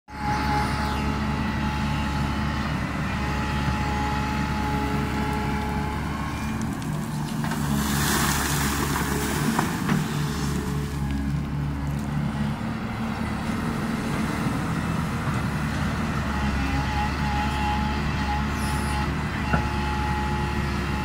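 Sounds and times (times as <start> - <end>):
excavator diesel engine running: 0.1 - 21.0
bucket scraping into gravel: 6.9 - 10.9.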